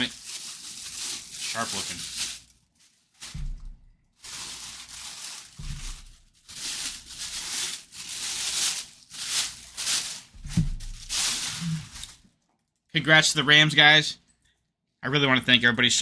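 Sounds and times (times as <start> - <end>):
plastic bag crinkling: 0.0 - 12.8
dull low thuds: 3.2 - 3.9, 5.5 - 6.2, 10.4 - 11.0.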